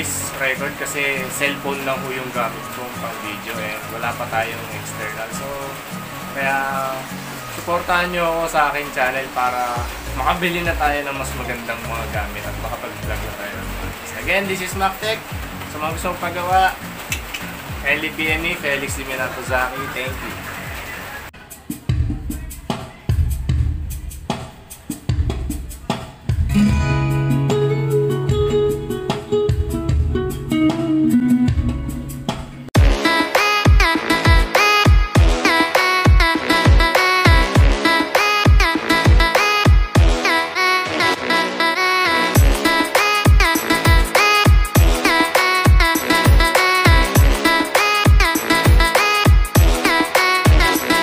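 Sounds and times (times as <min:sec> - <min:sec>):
heavy drum hits: 0:32.3 - 0:33.0.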